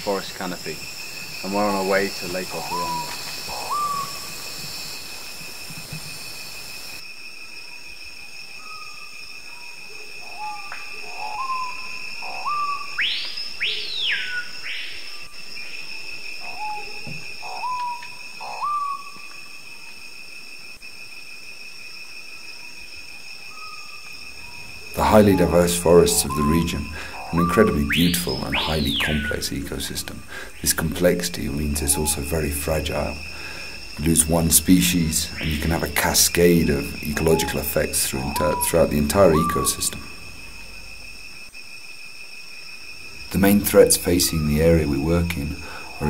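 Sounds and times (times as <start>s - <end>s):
high insect drone: 0.0s - 46.0s
bird whistling rising notes: 2.5s - 4.5s, 10.3s - 15.2s, 16.5s - 19.3s, 23.5s - 30.2s, 36.8s - 40.4s.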